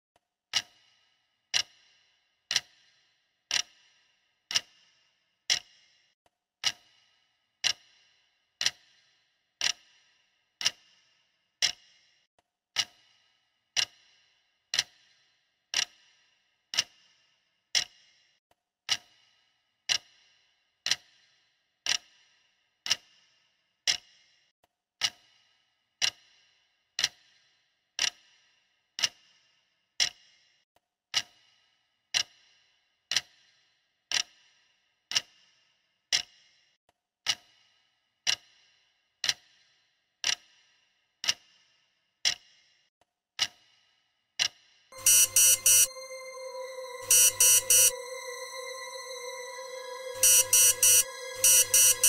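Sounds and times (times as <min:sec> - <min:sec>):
clock ticking: 0:45.0 - 0:49.3, 0:50.2 - 0:52.0.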